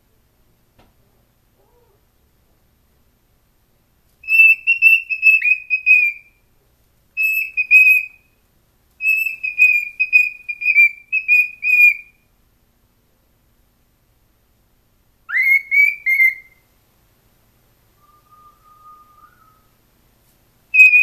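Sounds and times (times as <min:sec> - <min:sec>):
cockatiel whistling: 0:04.2 - 0:06.4, 0:07.2 - 0:08.3, 0:09.0 - 0:12.2, 0:15.3 - 0:16.6, 0:18.0 - 0:19.8, 0:20.7 - 0:21.0.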